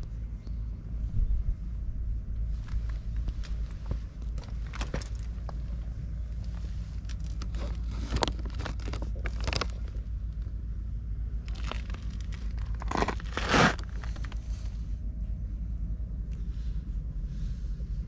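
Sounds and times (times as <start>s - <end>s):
wind rumble on microphone: 0.0s - 18.0s
plastic packaging crinkling: 7.0s - 10.0s, 11.4s - 14.4s.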